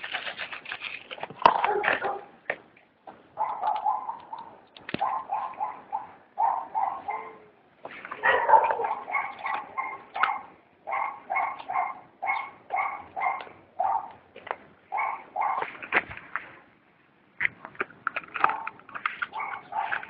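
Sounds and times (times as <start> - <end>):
puppy yipping: 3.4 - 7.5, 8.2 - 14.2, 14.9 - 15.7, 19.3 - 20.0.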